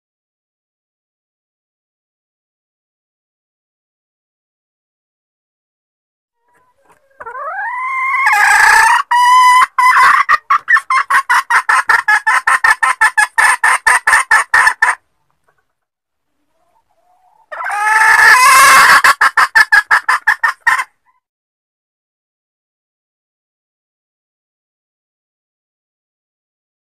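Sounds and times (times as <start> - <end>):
hen squawking and clucking: 6.4 - 15.7, 16.4 - 21.2.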